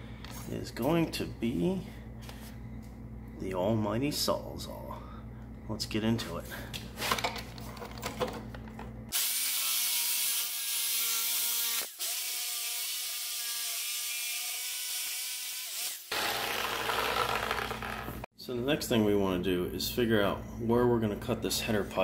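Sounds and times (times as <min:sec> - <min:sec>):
reciprocating saw cutting metal: 0:09.1 - 0:18.2.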